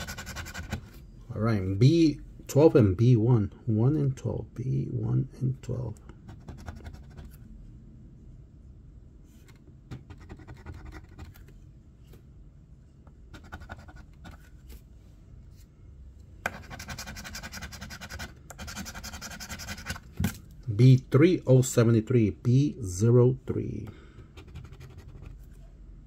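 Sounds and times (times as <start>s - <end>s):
coin scratching lottery ticket: 0.0s - 0.8s, 16.5s - 20.0s.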